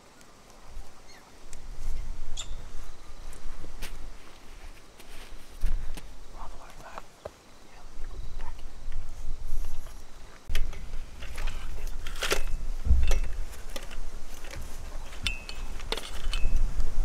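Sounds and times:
wind rumbling on microphone: 0.6 - 17.0
high bird chirps: 2.4 - 2.7.

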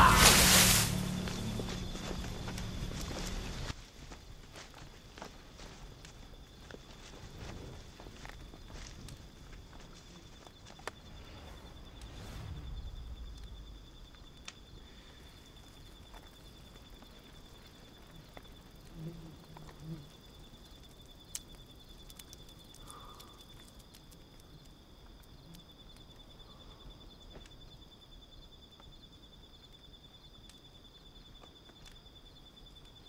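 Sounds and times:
insect trilling: 0.0 - 3.7, 8.2 - 29.0.

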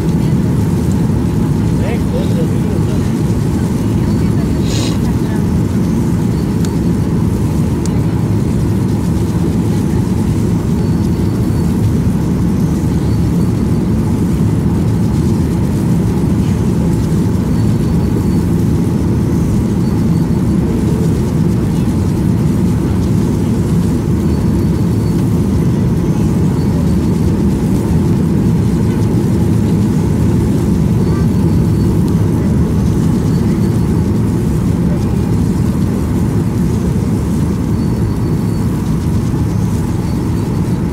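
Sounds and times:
airliner cabin rumble: 0.0 - 40.9.

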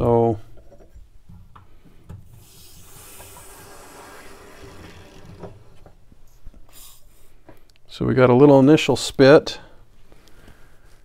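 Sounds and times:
water hissing through valve: 2.3 - 5.9.

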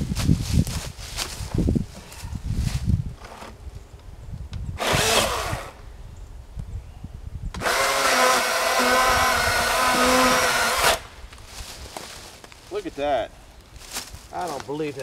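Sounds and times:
electric chainsaw cutting log: 4.8 - 5.8, 7.6 - 11.1.

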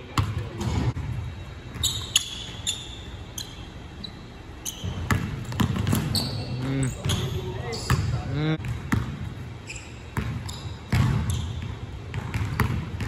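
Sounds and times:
shoe squeaks: 1.8 - 8.0, 9.6 - 11.6
basketball bouncing on wood floor: 4.9 - 6.2, 10.2 - 13.0.

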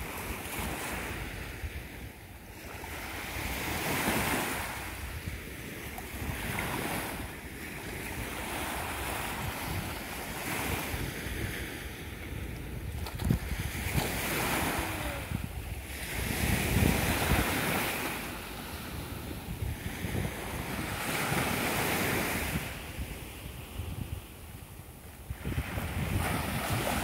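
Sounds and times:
waves washing onto shore: 0.0 - 27.0
wind rumbling on microphone: 0.0 - 27.0.

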